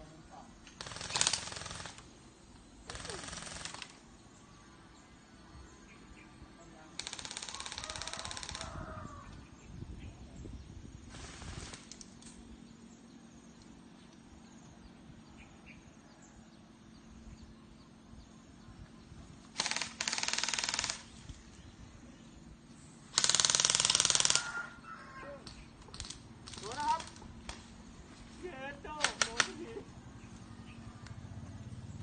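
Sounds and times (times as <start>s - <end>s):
full-auto bb gun bursts: 0.6s - 2.2s, 2.8s - 4.1s, 6.9s - 8.8s, 11.1s - 12.2s, 19.5s - 21.4s, 23.1s - 24.6s, 25.8s - 27.6s, 29.0s - 29.6s.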